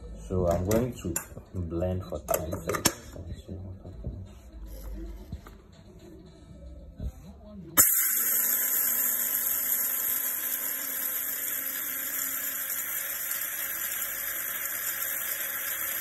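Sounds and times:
electric grinder grinding rice: 0:07.8 - 0:16.0.

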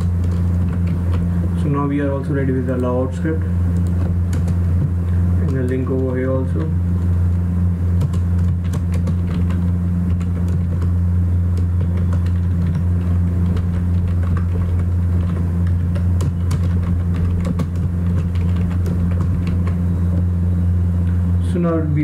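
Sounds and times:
computer keyboard keys clicking: 0:00.0 - 0:01.3, 0:03.7 - 0:06.7, 0:08.0 - 0:20.2
low hum: 0:00.0 - 0:22.0.

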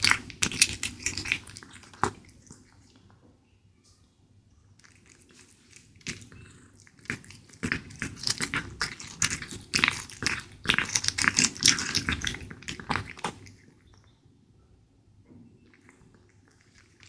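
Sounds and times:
cat chewing raw meat: 0:00.0 - 0:03.0, 0:04.8 - 0:14.0, 0:15.7 - 0:17.0.

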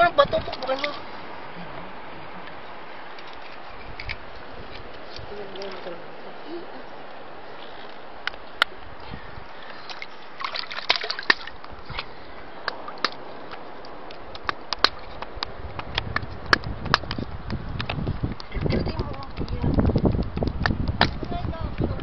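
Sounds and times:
water sloshing and splashing: 0:00.0 - 0:06.4, 0:09.5 - 0:15.2.

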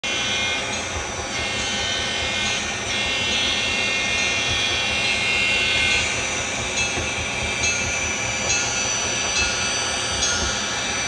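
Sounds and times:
model train motors whining: 0:00.0 - 0:11.0
wheel and track noise: 0:00.0 - 0:11.0.

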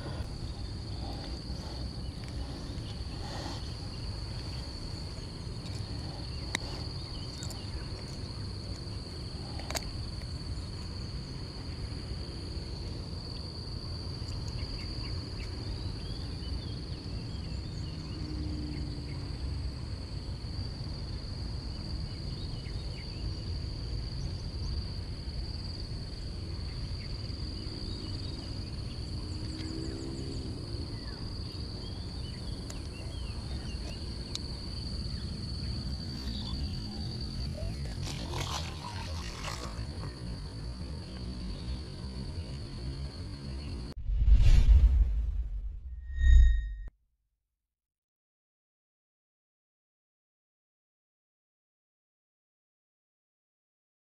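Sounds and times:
low rumbling noise: 0:00.0 - 0:10.1, 0:43.6 - 0:46.9
high-pitched insect drone: 0:00.0 - 0:43.9, 0:46.0 - 0:46.9.

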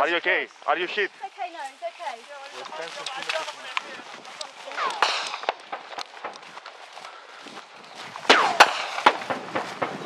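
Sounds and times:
running footsteps in grass: 0:00.0 - 0:10.0
loud sharp cracks: 0:04.7 - 0:06.6, 0:08.2 - 0:10.0.

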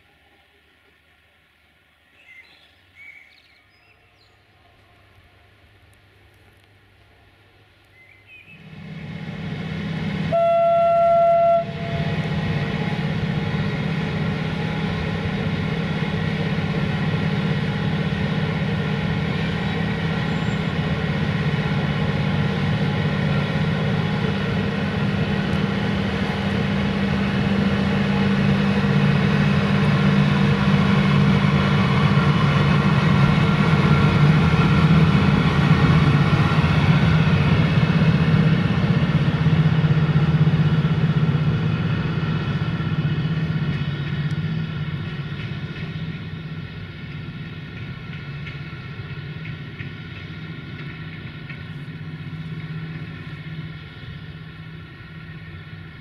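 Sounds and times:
locomotive droning hum: 0:04.4 - 0:56.0
locomotive horn blast: 0:10.2 - 0:12.4.

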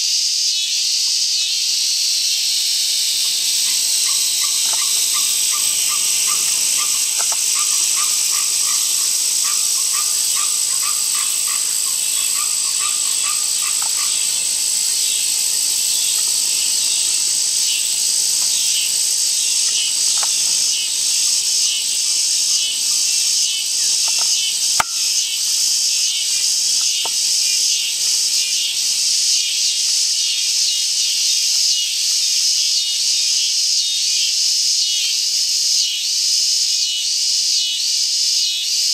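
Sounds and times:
high-pitched insect chorus: 0:00.0 - 0:38.9
lower repeated calls: 0:02.1 - 0:29.2
sharp click: 0:24.0 - 0:25.3.

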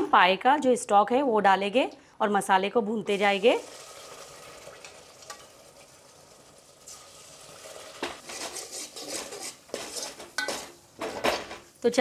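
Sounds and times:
masala frying in pot: 0:03.1 - 0:12.0
ladle scraping and clinking pot: 0:07.6 - 0:11.6.

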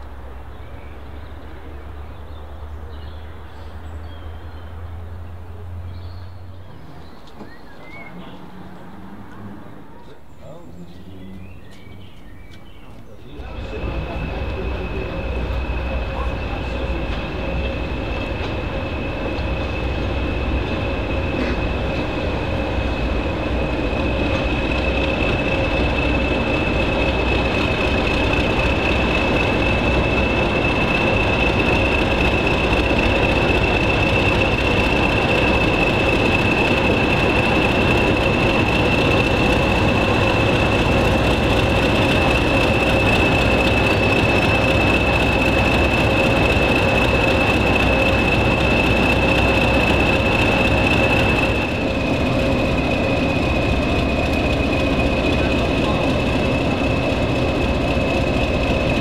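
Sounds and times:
train engine rumble: 0:00.0 - 0:59.0
steady high whine: 0:13.2 - 0:59.0.

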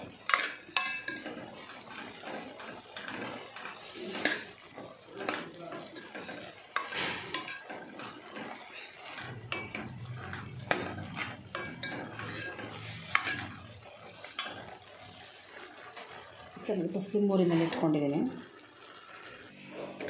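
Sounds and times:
ladle stirring corn in metal pan: 0:00.0 - 0:20.0
ladle clinking against pan: 0:00.3 - 0:01.5, 0:05.2 - 0:08.2, 0:09.2 - 0:13.6.

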